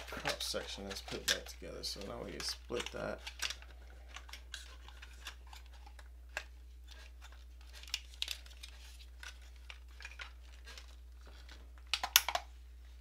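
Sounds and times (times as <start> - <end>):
plastic toy parts clicking: 0.2 - 6.5, 11.9 - 12.5.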